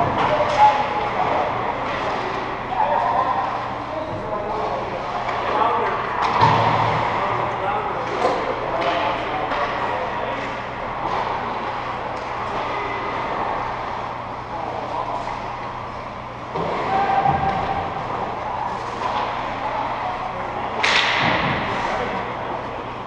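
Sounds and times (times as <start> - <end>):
echoing arena noise: 0.0 - 23.0
steady low hum: 0.0 - 23.0.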